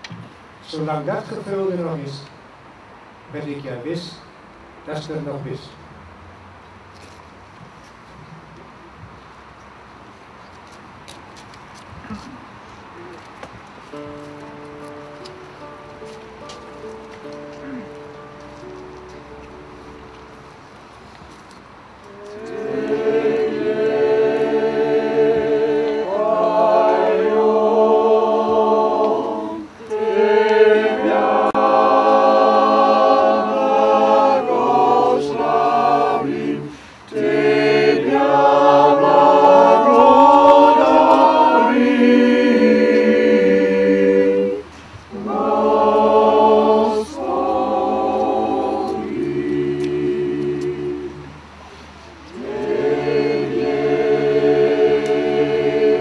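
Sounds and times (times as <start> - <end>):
mixed choir singing: 22.0 - 51.6, 52.3 - 56.0.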